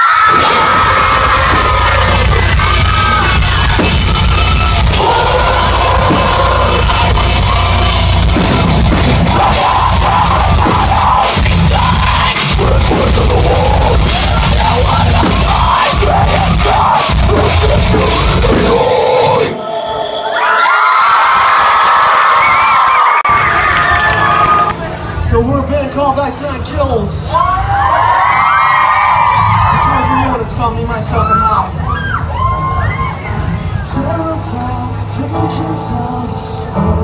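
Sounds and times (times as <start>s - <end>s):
distorted guitars: 0.0s - 19.5s
yelled vocals: 0.0s - 20.2s
pounding drums: 0.2s - 19.2s.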